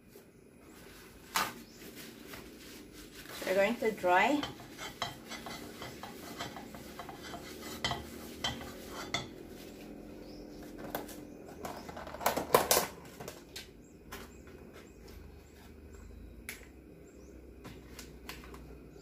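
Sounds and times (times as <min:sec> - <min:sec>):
paper towel wiping a pan: 0:00.8 - 0:10.3
dishes and utensils clattering: 0:04.3 - 0:09.5.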